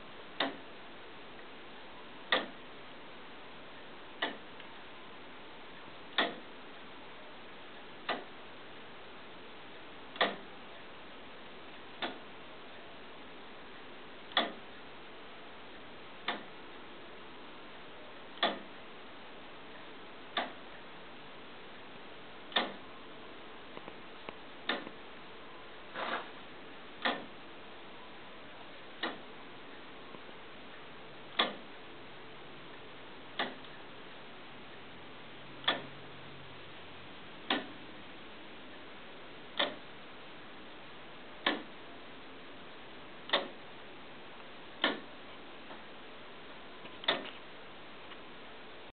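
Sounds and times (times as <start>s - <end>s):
clock ticking: 0.4s - 0.6s, 2.3s - 2.6s, 4.2s - 4.6s, 6.1s - 6.5s, 8.0s - 8.4s, 10.1s - 10.5s, 12.0s - 12.2s, 14.3s - 14.6s, 16.2s - 16.6s, 18.4s - 18.8s, 20.3s - 20.6s, 22.5s - 22.8s, 24.6s - 25.0s, 27.0s - 27.3s, 29.0s - 29.3s, 31.3s - 31.7s, 33.4s - 33.8s, 35.6s - 36.0s, 37.4s - 37.9s, 39.5s - 39.9s, 41.4s - 41.8s, 43.3s - 43.6s, 44.8s - 45.1s.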